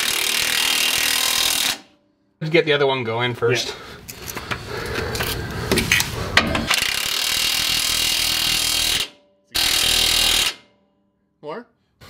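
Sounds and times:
impact wrench running: 0.0 - 2.0, 4.1 - 10.7.

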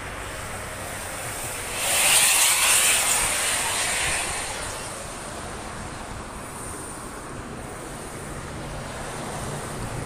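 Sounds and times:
steady traffic noise: 0.0 - 10.0
vehicle passing close by: 0.4 - 6.4.

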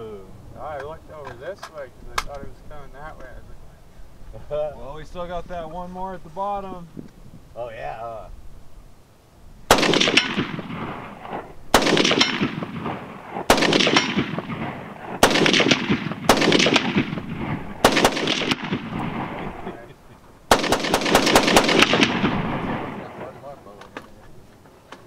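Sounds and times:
rifle shots with rolling echo: 9.7 - 23.8.

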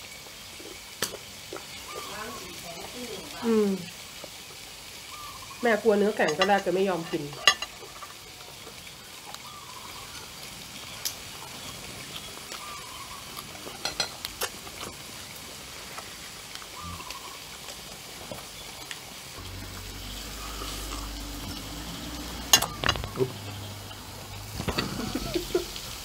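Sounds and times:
meat sizzling on a grill pan: 0.0 - 26.0
chopsticks and tableware clinking: 6.2 - 8.2, 13.7 - 14.2, 22.5 - 23.6
low hum: 19.4 - 25.2.

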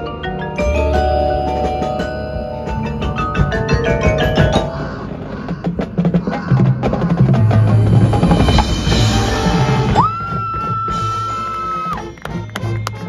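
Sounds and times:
sharp percussion strikes: 0.0 - 5.1
mallet percussion notes: 0.0 - 5.3.

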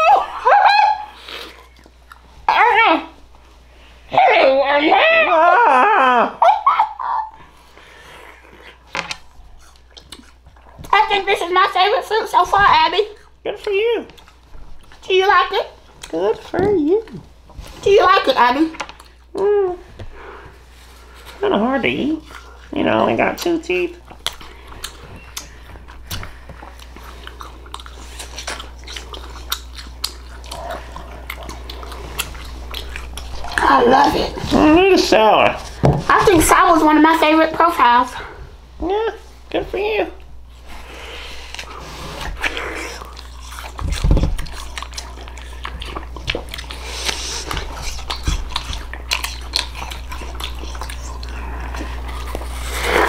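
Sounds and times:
crisp apple crunching: 1.0 - 2.5, 7.6 - 19.6, 20.9 - 37.7, 40.2 - 53.0
wet mouth sounds: 1.0 - 2.5, 7.1 - 11.0, 18.7 - 20.0, 22.2 - 34.6, 40.6 - 53.0
person chewing fruit: 1.0 - 4.1, 7.0 - 39.5, 40.2 - 53.0.

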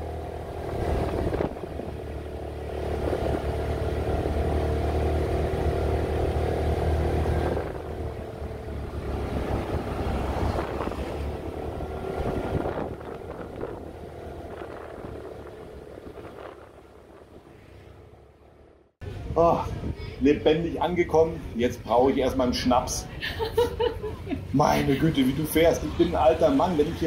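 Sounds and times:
wind noise: 0.0 - 4.9, 6.5 - 17.6, 19.0 - 20.6
scooter engine running: 0.0 - 18.7.

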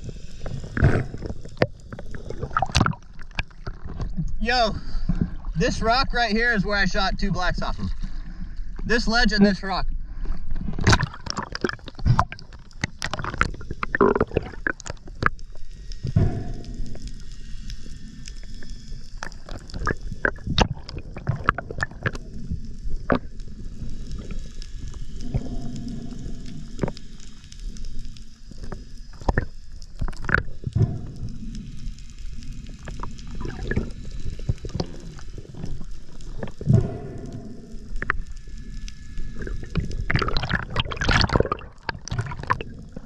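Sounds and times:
underwater water rush: 0.0 - 43.0.

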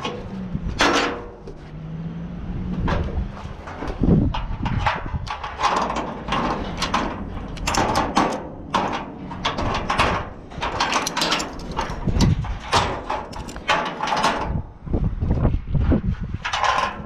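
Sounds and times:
metal hooks clinking on steel: 6.4 - 14.4.

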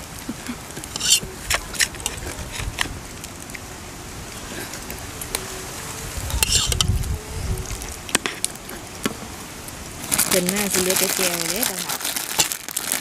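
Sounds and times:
spoons clinking on plates: 0.8 - 2.2.

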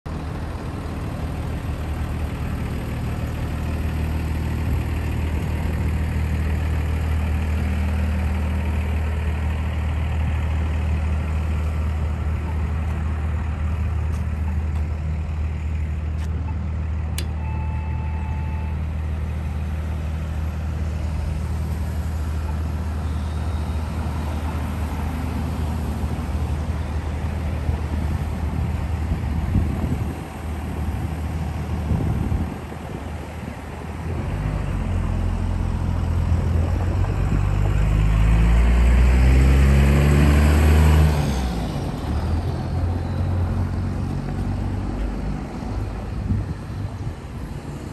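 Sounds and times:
traffic rumble: 0.1 - 47.9
sharp click: 17.2 - 17.4
short beep: 17.2 - 18.8.

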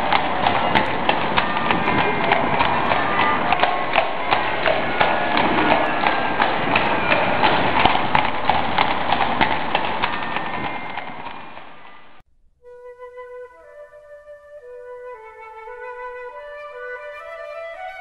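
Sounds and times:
horse hooves clip-clopping: 0.0 - 12.2.

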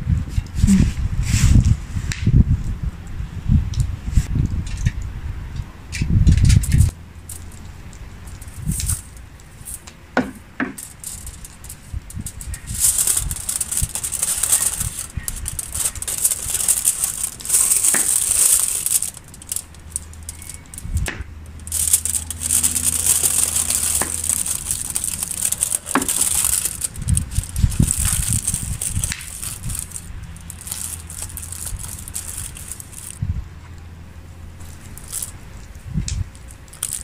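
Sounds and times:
aluminium foil crinkling: 6.6 - 33.2, 34.6 - 37.0.

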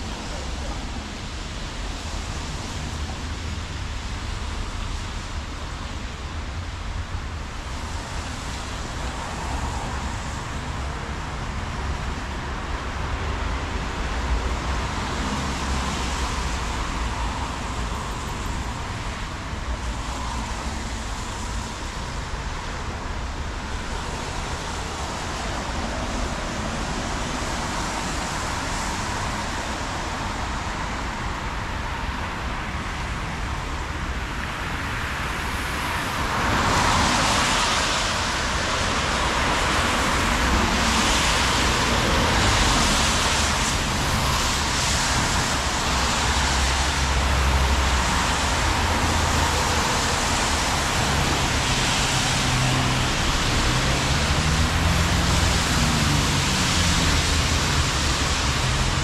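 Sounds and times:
low traffic rumble: 0.0 - 59.0
tyres hissing on wet road: 0.0 - 59.0.

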